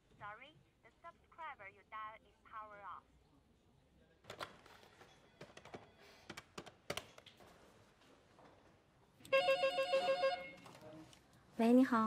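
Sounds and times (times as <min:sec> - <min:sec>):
desk telephone ringing: 0:09.3 - 0:10.7.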